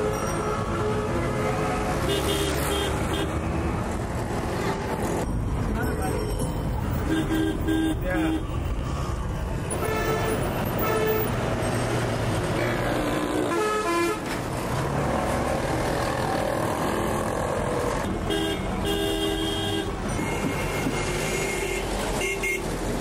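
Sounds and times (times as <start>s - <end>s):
traffic engine rumble: 0.0s - 23.0s
vehicle horns honking: 2.1s - 3.3s, 7.0s - 8.5s, 9.7s - 11.3s, 13.5s - 14.3s, 18.1s - 22.7s.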